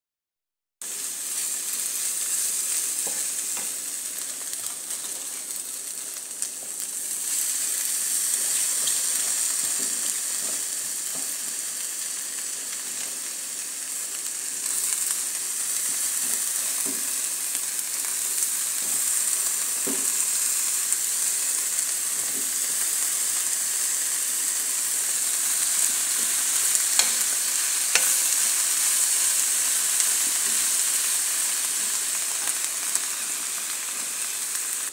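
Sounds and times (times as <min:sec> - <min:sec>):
vegetables sizzling in a pan: 0:00.8 - 0:34.9.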